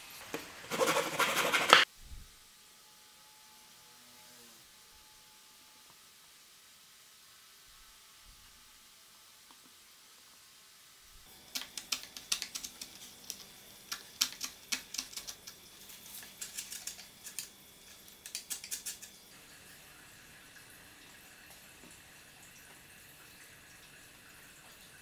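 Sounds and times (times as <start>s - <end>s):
hand plane shaving wood: 0.7s - 1.8s.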